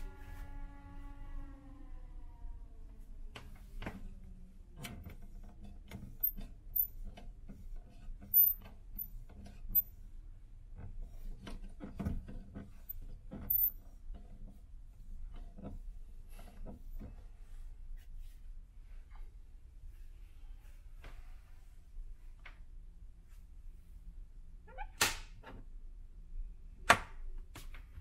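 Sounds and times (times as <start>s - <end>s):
low steady hum: 0.0s - 11.5s.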